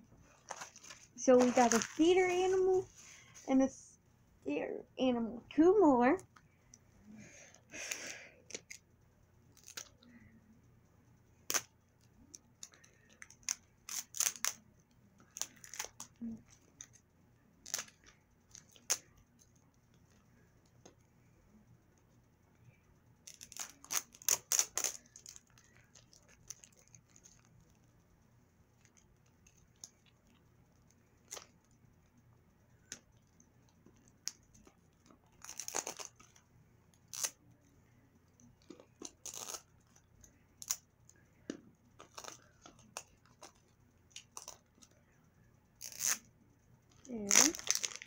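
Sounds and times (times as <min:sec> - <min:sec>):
plastic wrapping tearing: 0:00.5 - 0:02.6, 0:13.2 - 0:14.6, 0:15.3 - 0:16.1, 0:17.6 - 0:19.0, 0:23.3 - 0:27.5, 0:35.4 - 0:36.3, 0:39.0 - 0:39.6, 0:45.8 - 0:46.2, 0:47.0 - 0:48.0.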